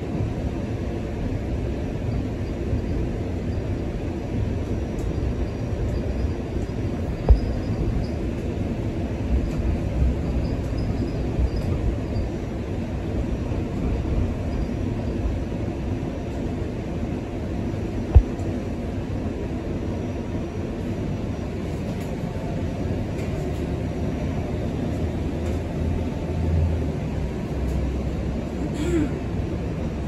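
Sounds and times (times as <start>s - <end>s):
streetcar wheels rumbling on rails: 0.0s - 30.0s.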